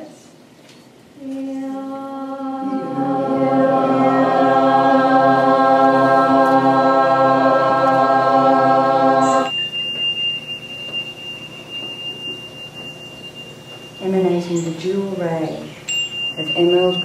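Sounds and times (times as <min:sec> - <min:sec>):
group of voices toning: 0:02.4 - 0:09.5.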